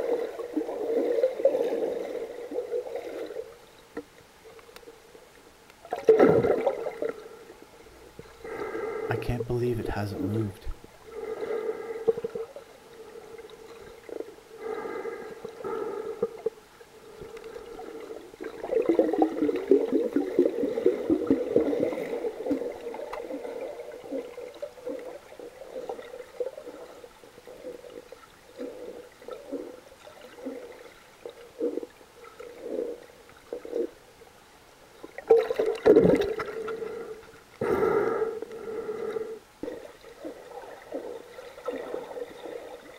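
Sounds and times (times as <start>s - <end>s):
water gurgling in tube: 5.8s - 7.3s, 18.4s - 33.9s, 35.2s - 36.9s
breathing through a snorkel: 8.4s - 9.2s, 11.1s - 12.5s, 14.5s - 16.5s, 36.6s - 39.8s.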